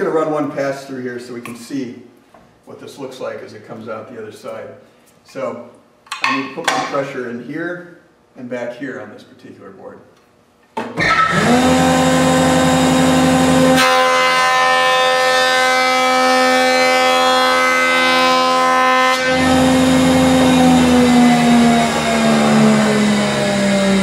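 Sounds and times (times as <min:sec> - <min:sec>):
cutterhead planing a board: 0:11.0 - 0:24.0
jointer motor whine: 0:11.0 - 0:24.0.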